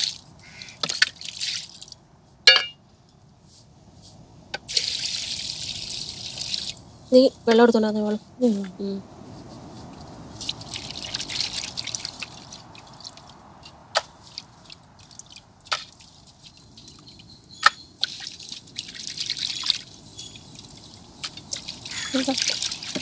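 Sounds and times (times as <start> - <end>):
water splashing and dripping: 0.0 - 2.1, 4.6 - 6.9, 10.3 - 23.0.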